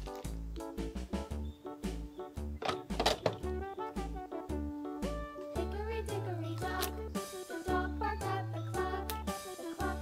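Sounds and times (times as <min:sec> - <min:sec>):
bouncing bass line: 0:00.3 - 0:05.4.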